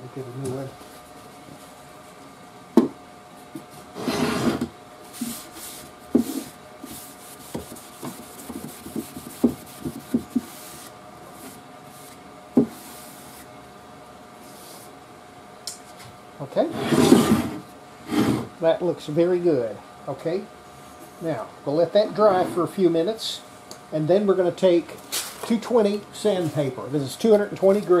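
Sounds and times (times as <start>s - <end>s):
knocks against wood: 2.8s - 3.0s.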